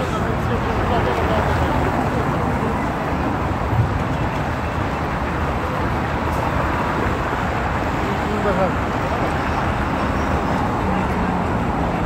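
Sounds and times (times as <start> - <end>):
road traffic: 0.0 - 12.0
walking crowd: 0.0 - 12.0.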